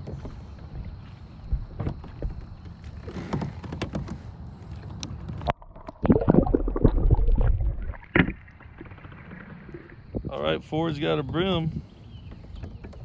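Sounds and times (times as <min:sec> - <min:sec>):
muffled underwater rumbling: 0:05.2 - 0:13.0
water splashing: 0:05.4 - 0:10.4.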